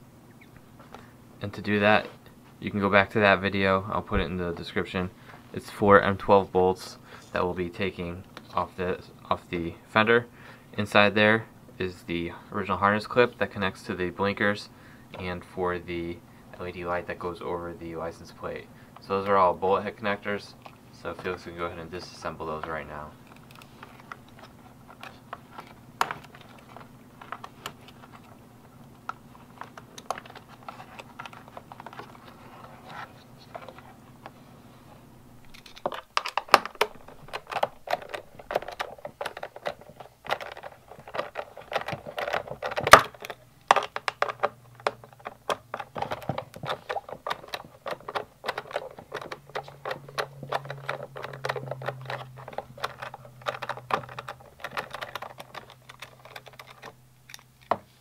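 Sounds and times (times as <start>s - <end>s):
connectors clicking apart: 35.4s - 57.8s.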